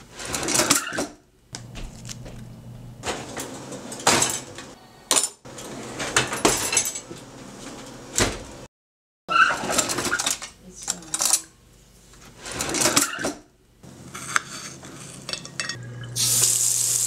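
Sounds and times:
metal cutlery clinking: 0:14.2 - 0:15.8.

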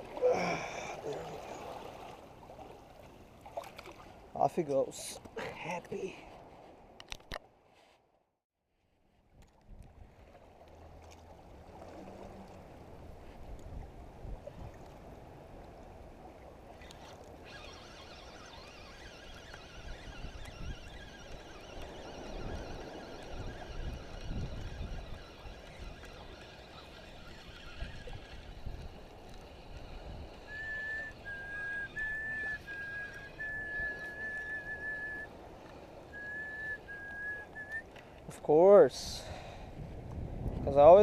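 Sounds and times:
fishing reel whine: 0:16.8 - 0:35.3
wind buffeting microphone: 0:19.2 - 0:32.4, 0:39.4 - 0:41.0
whistled note: 0:30.5 - 0:35.3, 0:36.1 - 0:37.9.

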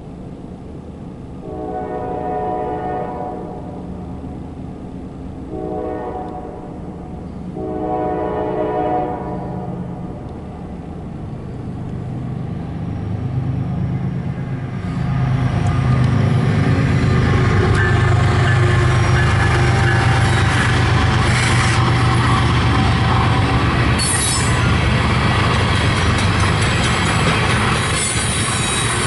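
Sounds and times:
diesel locomotive engine rumble: 0:00.0 - 0:29.0
train wheels rolling: 0:10.1 - 0:29.0.

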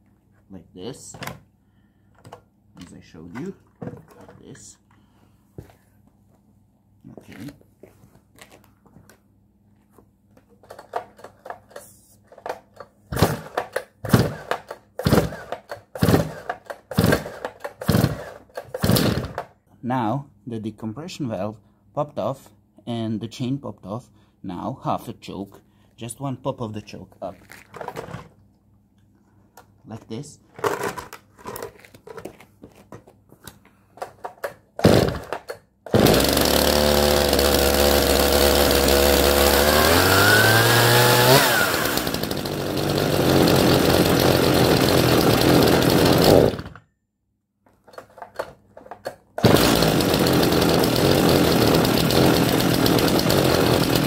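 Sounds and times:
recoil starter pulls: 0:10.6 - 0:19.5, 0:34.0 - 0:46.8, 0:47.8 - 0:54.0
chainsaw engine popping: 0:13.1 - 0:19.4, 0:34.8 - 0:46.8, 0:49.4 - 0:54.0.

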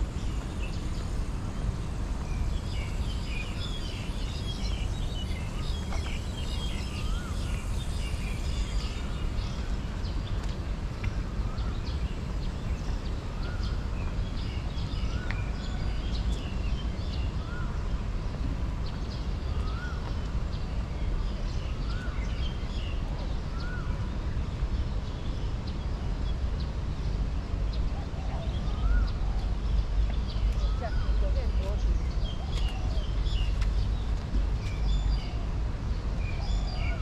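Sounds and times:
steady low rumble: 0:00.0 - 0:37.0
birds chirping and calling: 0:27.9 - 0:35.4.

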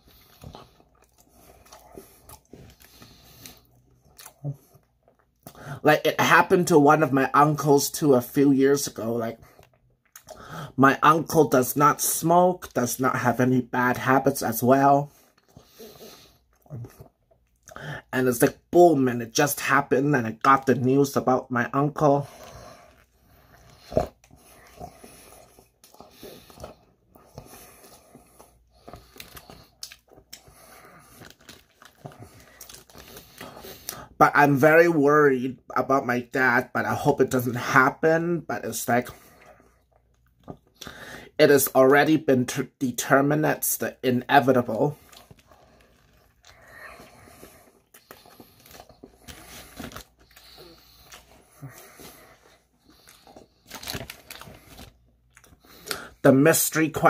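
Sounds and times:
soft chewing and mouth clicks: 0:00.0 - 0:05.7, 0:09.4 - 0:10.6, 0:15.2 - 0:18.0, 0:22.4 - 0:34.1, 0:39.3 - 0:41.0, 0:44.9 - 0:56.2
paper wrapper crinkling: 0:28.9 - 0:33.6, 0:44.9 - 0:46.6, 0:48.3 - 0:51.3, 0:53.0 - 0:55.6.

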